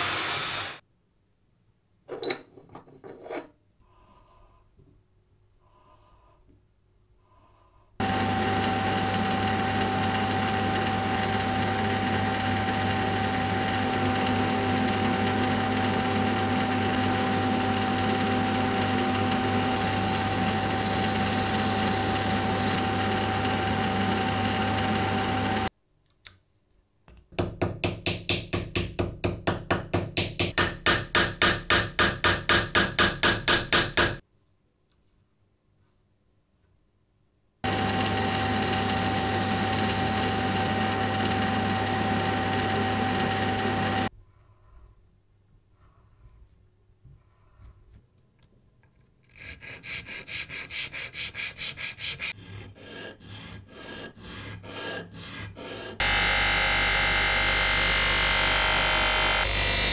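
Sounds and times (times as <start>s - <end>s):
metal lathe motor hum: 8.0s - 25.7s, 37.6s - 44.1s
sandpaper hissing on spinning metal: 19.3s - 24.2s, 37.7s - 40.9s.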